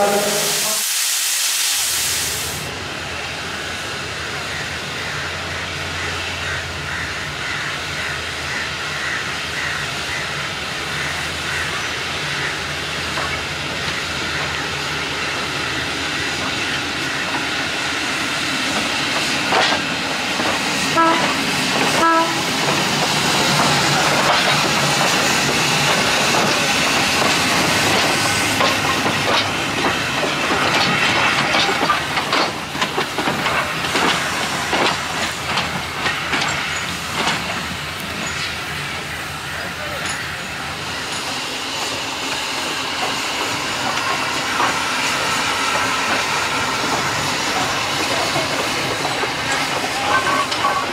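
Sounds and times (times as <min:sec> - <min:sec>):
steam locomotive hissing: 0:00.0 - 0:50.9
wheels clicking over rail joints: 0:18.7 - 0:38.6, 0:45.7 - 0:50.9
train whistle toots: 0:20.9 - 0:21.4, 0:22.0 - 0:22.6.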